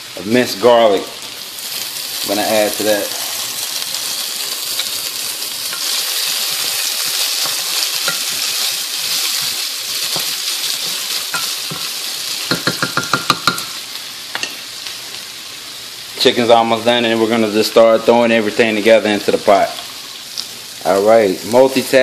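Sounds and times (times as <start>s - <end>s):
sausage sizzling in hot oil: 0.0s - 22.0s
wooden spoon knocking against pot: 12.5s - 13.7s.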